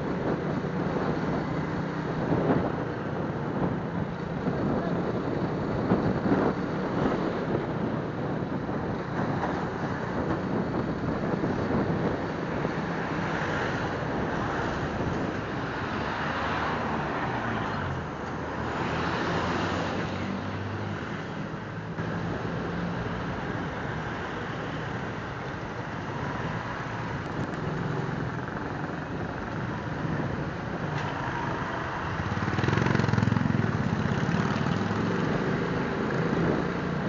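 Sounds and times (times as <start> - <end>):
wind rushing over microphone: 0.0 - 37.0.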